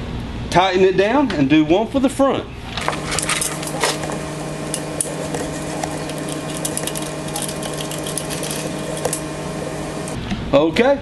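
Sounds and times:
steady hum: 0:02.6 - 0:10.2.

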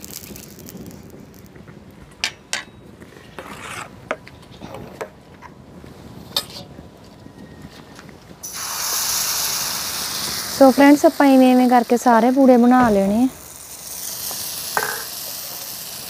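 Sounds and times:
batter sizzling on griddle: 0:00.0 - 0:02.0, 0:08.4 - 0:16.0
metal spatula clinking and scraping: 0:14.8 - 0:15.1.

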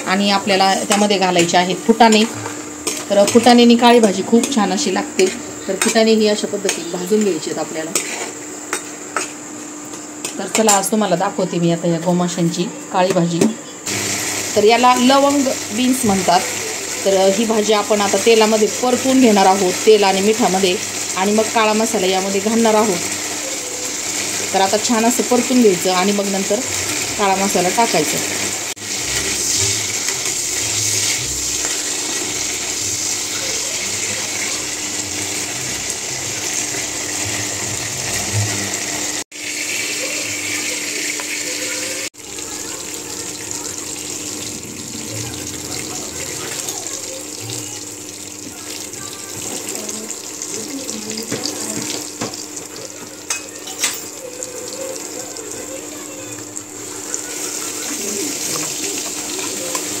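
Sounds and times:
oil sizzling in a metal pan: 0:13.9 - 1:00.0.

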